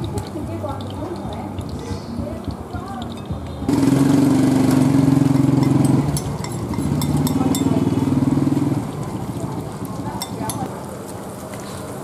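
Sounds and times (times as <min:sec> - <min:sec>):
oil crackling in a pan: 0:00.0 - 0:12.0
small engine running: 0:03.7 - 0:06.3.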